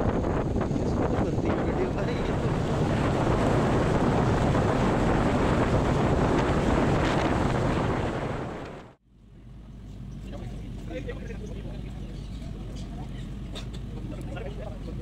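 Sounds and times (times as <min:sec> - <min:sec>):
motorcycle engine: 0:00.0 - 0:09.0
wind rushing over microphone: 0:00.0 - 0:09.0.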